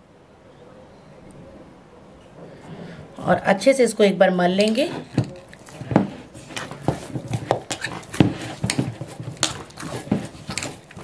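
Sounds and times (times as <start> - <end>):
dough squelching and slapping: 4.8 - 11.0.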